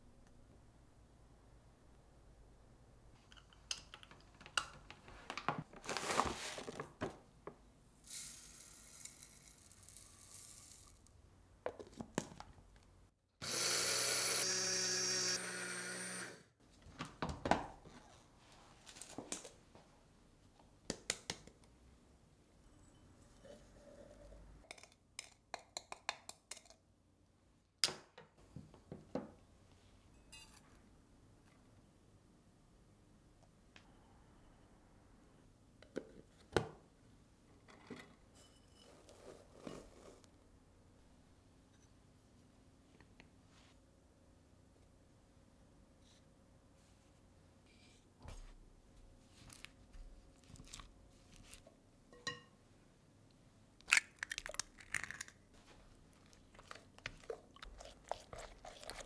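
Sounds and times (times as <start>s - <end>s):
blender grinding: 13.4s - 16.5s.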